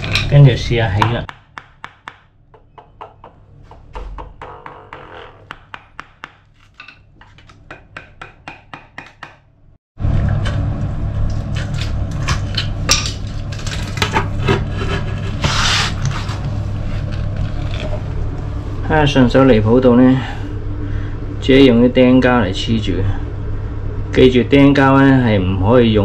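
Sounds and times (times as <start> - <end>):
knocks: 1.0 - 6.4
rapid tapping on marble: 4.0 - 6.5
scraping and rubbing: 6.4 - 7.7, 13.2 - 18.6.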